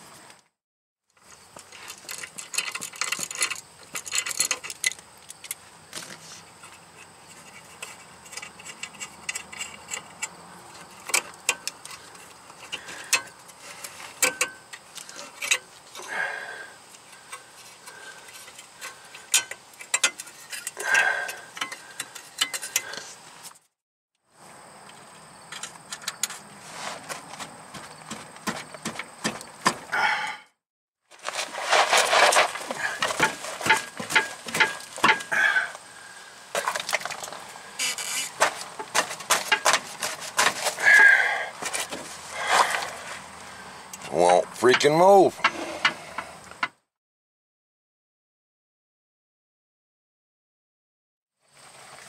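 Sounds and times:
metal clinking against metal: 0:18.3 - 0:22.9.

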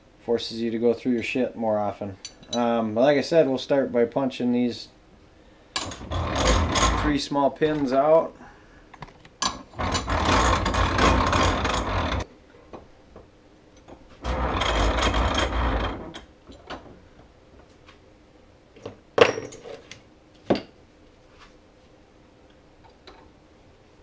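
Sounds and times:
bench vise rattling and grinding: 0:05.8 - 0:07.8, 0:09.4 - 0:12.3, 0:13.8 - 0:17.0.

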